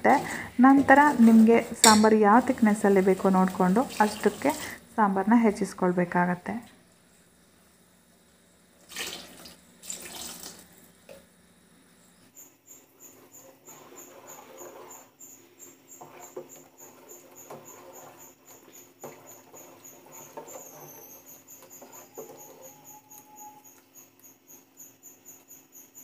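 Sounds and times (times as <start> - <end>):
metal spoon stirring in pot: 0.0 - 4.6, 13.0 - 23.7.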